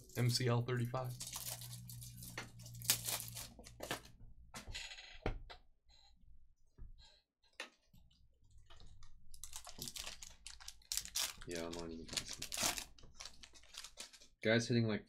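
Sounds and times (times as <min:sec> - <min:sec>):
foil wrapper crinkling: 0:00.1 - 0:03.8, 0:09.4 - 0:14.3.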